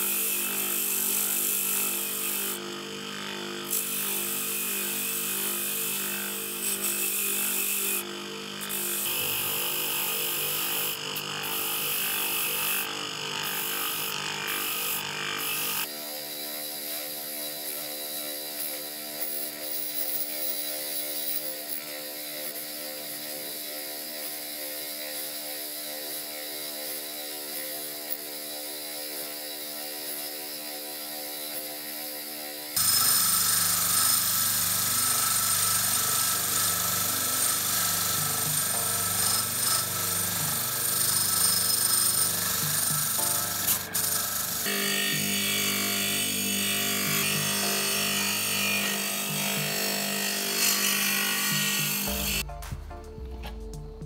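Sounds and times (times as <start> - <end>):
wire brush wheel humming: 31.5 - 52.4.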